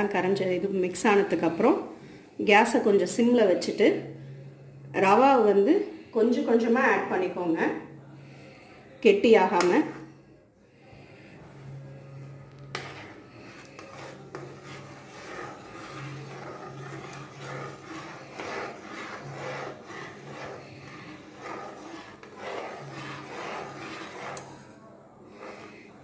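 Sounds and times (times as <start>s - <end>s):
spatula scraping in a pan: 0.3s - 26.0s.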